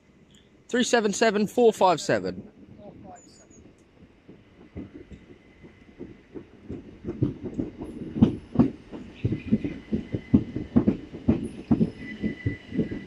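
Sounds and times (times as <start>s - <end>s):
train wheels clattering: 3.2s - 13.0s.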